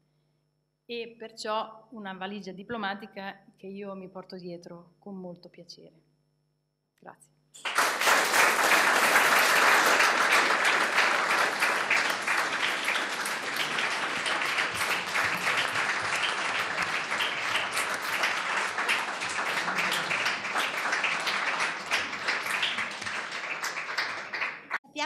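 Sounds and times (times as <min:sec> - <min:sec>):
audience applauding: 0:07.6 - 0:24.8.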